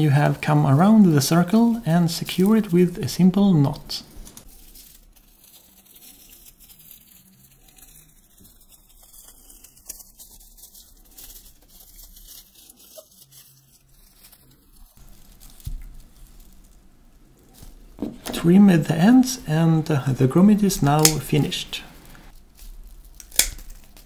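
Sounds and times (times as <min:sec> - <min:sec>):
dry fibres rustling and crackling: 0:00.0 - 0:24.0.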